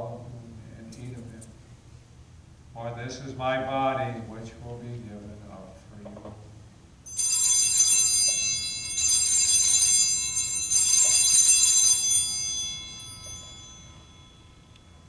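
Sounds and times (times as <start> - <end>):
altar bells jingling: 7.1 - 15.0.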